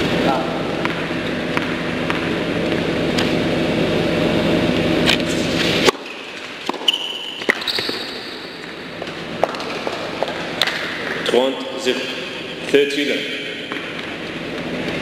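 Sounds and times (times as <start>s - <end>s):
background hum: 0.0s - 15.0s
shoes squeaking on court: 5.0s - 11.3s
tennis ball racket strikes: 5.8s - 8.8s.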